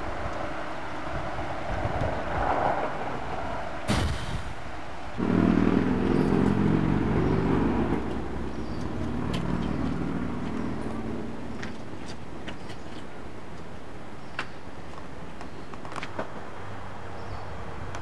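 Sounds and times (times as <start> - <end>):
vehicle engine running: 5.2 - 11.6.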